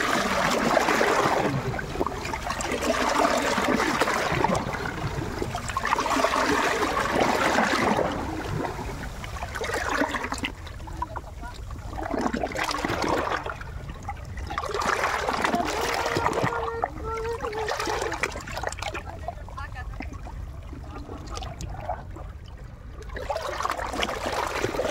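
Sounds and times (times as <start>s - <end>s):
water rushing over rocks: 0.0s - 13.6s.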